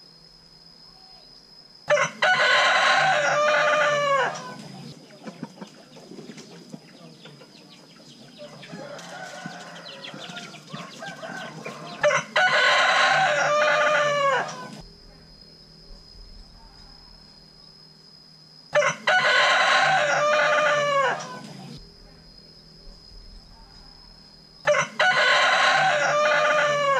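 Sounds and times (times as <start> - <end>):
rooster crowing: 1.9 - 4.9, 8.3 - 14.8, 18.7 - 21.8, 23.4 - 26.9
chicken clucking: 2.0 - 14.8.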